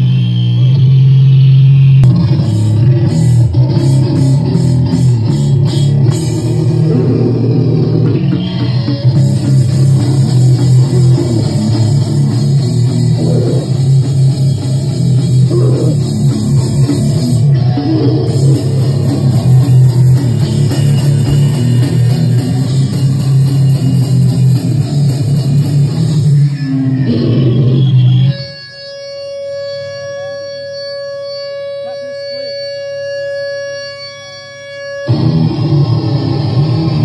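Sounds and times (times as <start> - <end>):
bass guitar: 0.0 - 28.6, 35.1 - 37.0
electric guitar: 0.0 - 37.0
drum kit: 2.0 - 26.6.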